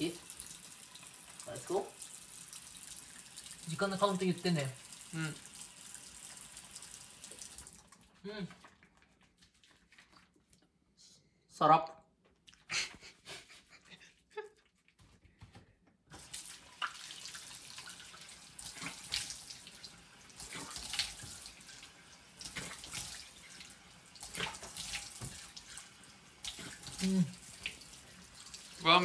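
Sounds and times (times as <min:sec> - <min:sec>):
faucet running: 0:00.0 - 0:08.0, 0:16.1 - 0:29.0.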